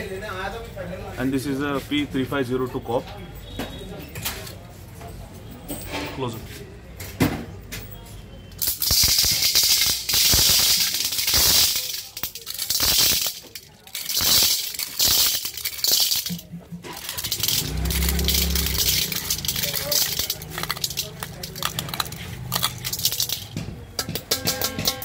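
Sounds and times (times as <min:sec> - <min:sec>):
corn kernels rattling into bowl: 0:08.6 - 0:25.0.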